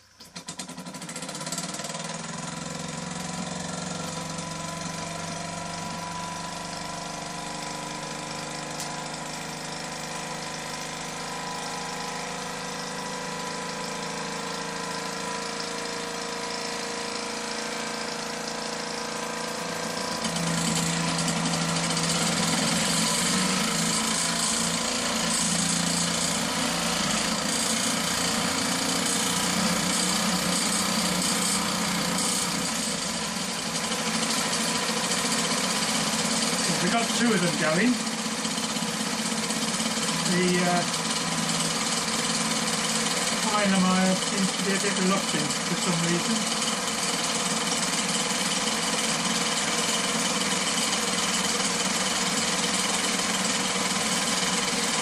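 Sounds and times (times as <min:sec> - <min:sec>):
toy steam engines chattering: 0:36.6 - 0:38.2, 0:39.7 - 0:46.8.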